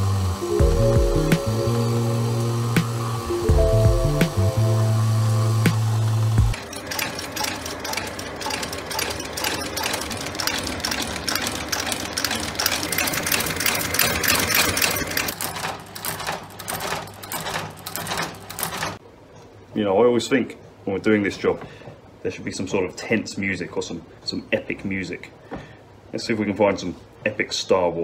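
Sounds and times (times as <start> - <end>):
low motor hum: 0.0 - 15.4
stitching machine clatter: 6.6 - 19.0.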